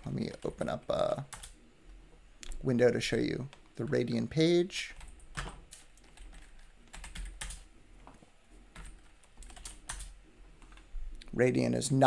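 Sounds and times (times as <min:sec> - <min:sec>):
computer keyboard typing: 0:01.3 - 0:01.6, 0:04.9 - 0:07.7, 0:08.7 - 0:10.8.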